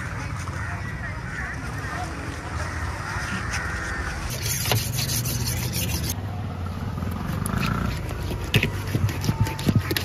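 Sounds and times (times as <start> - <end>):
scraping and rubbing of fish: 2.8 - 6.2, 7.2 - 10.0.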